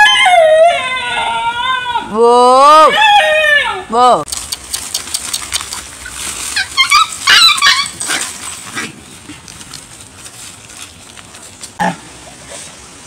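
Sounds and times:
dog yelping and whimpering: 6.5s - 8.2s.

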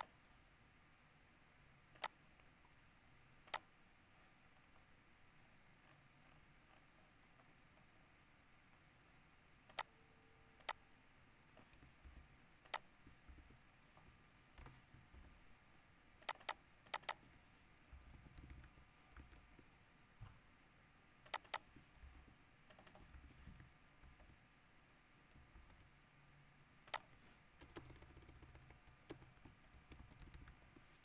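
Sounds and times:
faint low rumble: 0.0s - 31.0s
keyboard and mouse clicks: 1.9s - 2.5s, 3.4s - 3.7s, 9.6s - 9.9s, 10.6s - 10.8s, 11.5s - 15.4s, 16.2s - 17.3s, 17.9s - 19.8s, 21.2s - 24.4s, 25.3s - 25.9s, 26.8s - 30.9s.

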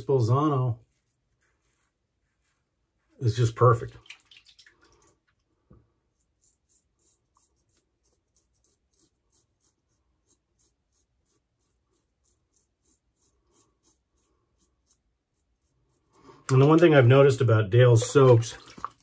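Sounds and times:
razor scraping stubble: 6.2s - 17.0s.

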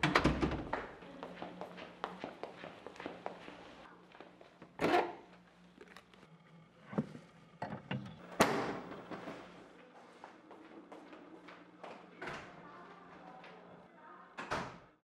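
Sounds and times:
footsteps: 0.8s - 6.1s.

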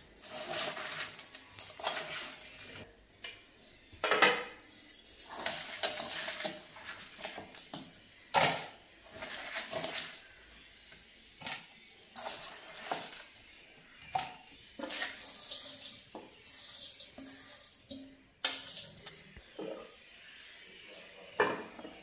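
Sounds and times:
steel bowl clinking: 0.0s - 2.9s, 4.6s - 7.8s, 11.4s - 19.8s
light background music: 0.0s - 22.0s.

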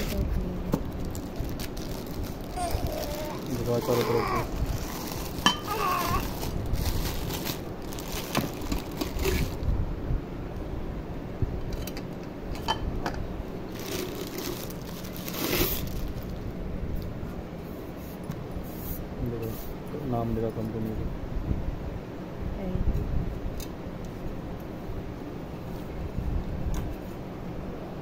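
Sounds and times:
plastic wrapping crinkling: 0.8s - 9.6s, 13.7s - 16.4s.

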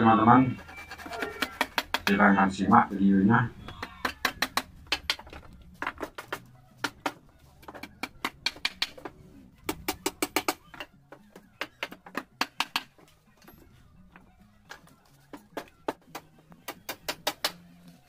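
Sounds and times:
hammer striking wood: 3.8s - 10.9s.

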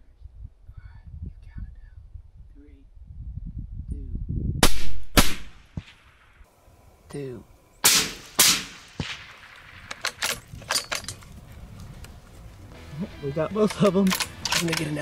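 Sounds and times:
rifle shots: 4.6s - 6.2s, 7.8s - 10.4s.

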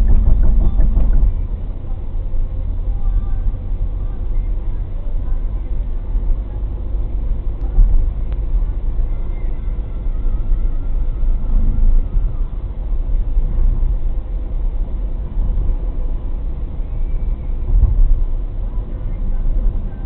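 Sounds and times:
car road and engine rumble: 0.0s - 20.0s.

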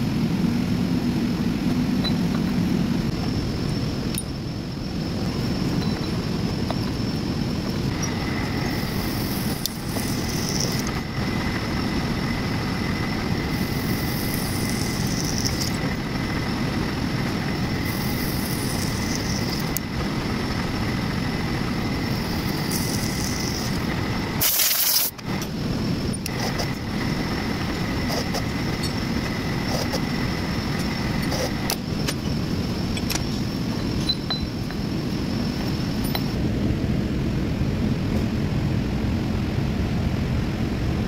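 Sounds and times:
faint steady whine: 0.0s - 41.0s
cutting hiss: 7.8s - 33.4s
drilling machine running: 7.9s - 31.9s
loud short hiss: 24.4s - 25.2s.

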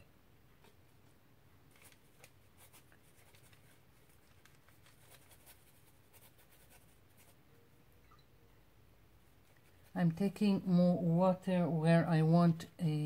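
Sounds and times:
paintbrush brushing on paper: 1.8s - 7.4s, 9.2s - 10.4s.

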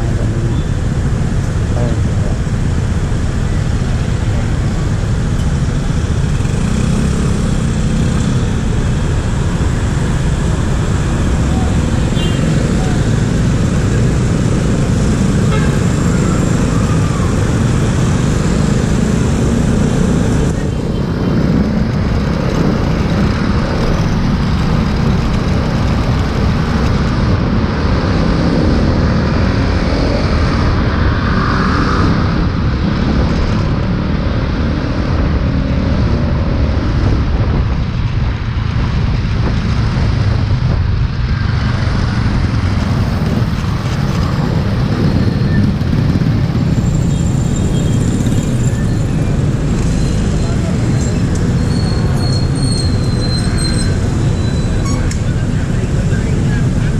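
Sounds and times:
surrounding traffic: 0.0s - 56.9s
wind rumble on microphone: 16.0s - 52.2s
motorcycle engine running: 39.3s - 52.6s.

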